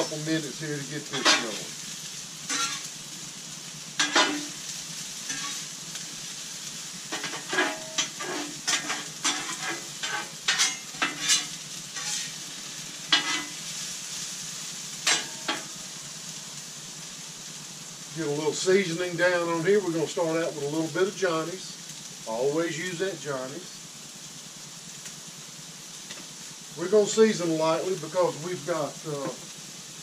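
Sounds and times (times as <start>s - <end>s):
vegetables sizzling in oil: 0.0s - 30.0s
metal spatula scraping griddle: 0.9s - 1.8s, 2.5s - 3.0s, 4.0s - 4.6s, 5.2s - 6.4s, 7.0s - 14.2s, 15.0s - 15.8s.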